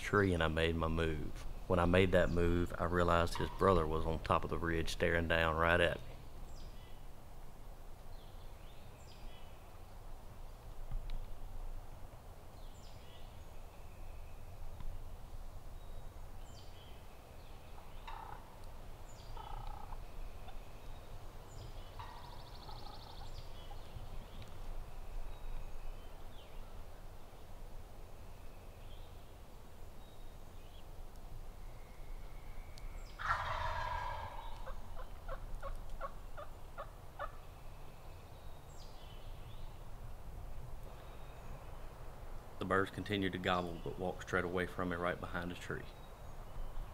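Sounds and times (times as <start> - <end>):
turkey gobbling: 3.2 - 3.7, 18.0 - 18.4, 19.4 - 20.6, 22.0 - 23.8, 33.2 - 37.4.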